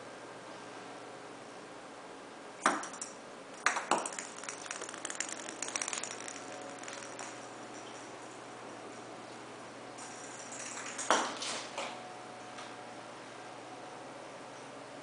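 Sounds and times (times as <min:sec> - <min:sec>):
plastic ball knocking on wood floor: 0:02.7 - 0:08.0.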